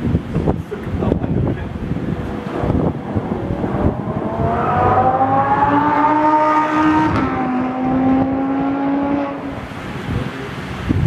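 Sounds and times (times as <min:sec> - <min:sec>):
wind buffeting microphone: 0:00.0 - 0:11.0
car engine accelerating: 0:01.7 - 0:10.8.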